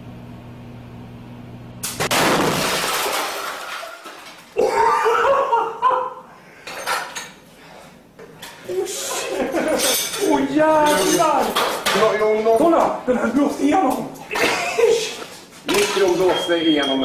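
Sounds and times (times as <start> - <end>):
microwave oven humming: 0.0 - 2.4
loud bang of box bursting: 2.0 - 3.7.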